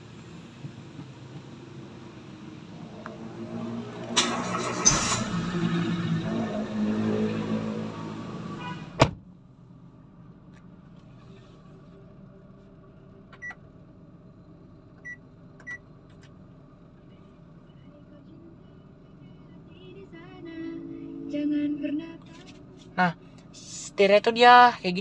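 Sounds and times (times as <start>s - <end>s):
engine cranking on starter: 4.0s - 5.8s.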